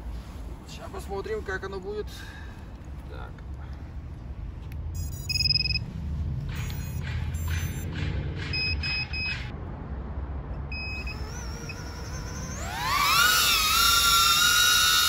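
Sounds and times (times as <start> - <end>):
short electronic beeps: 5.0 - 5.9, 6.6 - 7.9, 8.5 - 9.5, 10.7 - 11.2
drone motors whining: 10.7 - 15.0.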